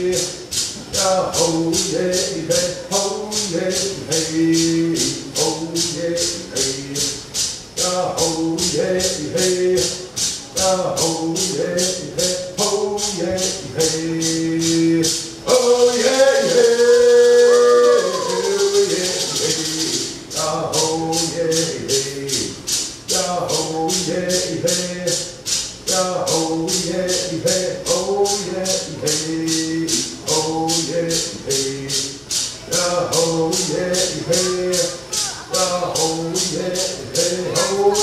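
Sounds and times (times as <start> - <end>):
shaken rattle beat: 0.0 - 38.0
chanted singing: 7.8 - 25.3, 25.9 - 38.0.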